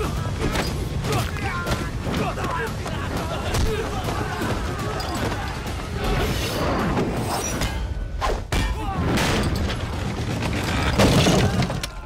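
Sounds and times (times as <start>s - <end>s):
men shouting: 0.0s - 6.2s
wooden panel crashing apart: 9.3s - 12.0s.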